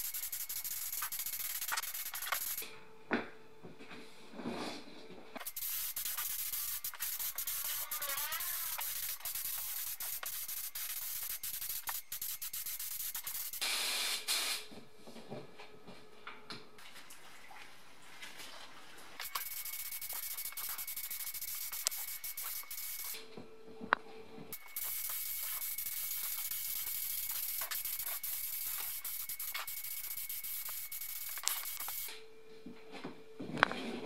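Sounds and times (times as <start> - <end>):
paint spray gun hissing: 0.0 - 2.6, 5.4 - 14.6, 19.2 - 23.2, 24.5 - 32.1.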